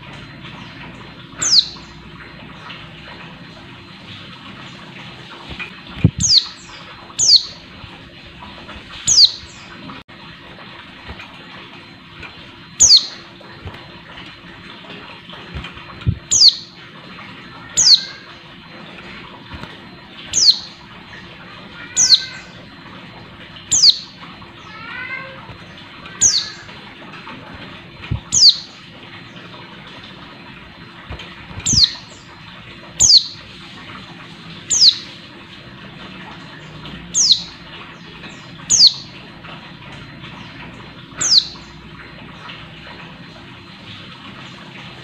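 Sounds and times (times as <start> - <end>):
bird soft twittering: 1.4 - 1.9, 6.2 - 7.6, 9.1 - 9.7, 12.8 - 13.2, 16.2 - 16.7, 20.3 - 20.8, 28.3 - 28.7, 31.6 - 32.1, 34.7 - 35.1.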